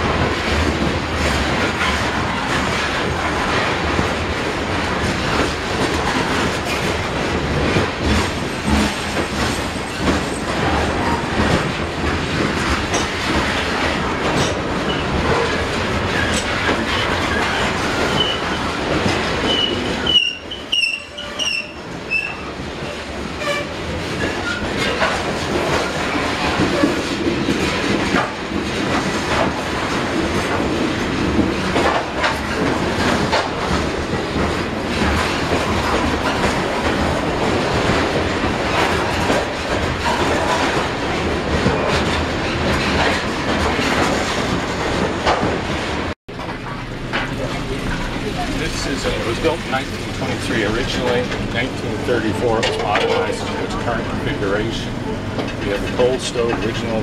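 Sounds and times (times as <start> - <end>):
train wheels clicking over rail joints: 0.0 - 57.0
high-pitched wheel squeals: 19.5 - 22.5.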